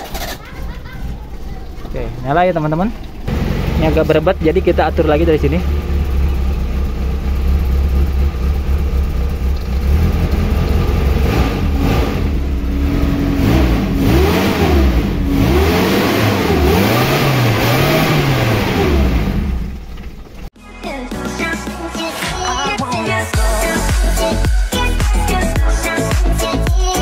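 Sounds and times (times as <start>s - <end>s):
rough car engine revving: 0.0s - 20.5s.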